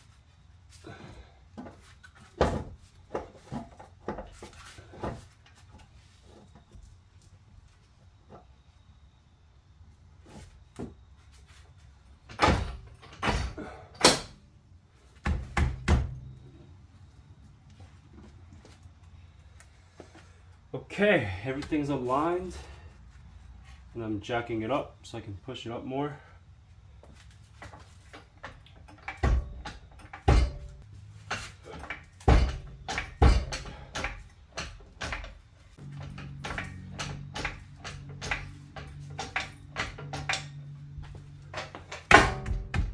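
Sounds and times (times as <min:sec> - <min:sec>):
heavy metal knocks and clunks: 0:28.4 - 0:42.9.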